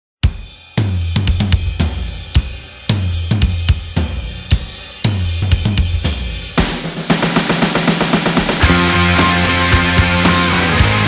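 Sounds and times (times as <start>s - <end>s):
drum kit beat: 0.2s - 11.0s
low bass line: 1.1s - 6.6s, 8.6s - 11.0s.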